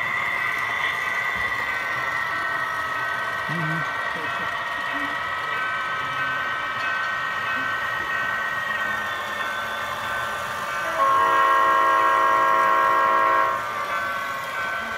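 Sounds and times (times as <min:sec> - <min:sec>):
model locomotive diesel engine sound: 0:00.0 - 0:14.9
locomotive horn chord: 0:10.9 - 0:13.6.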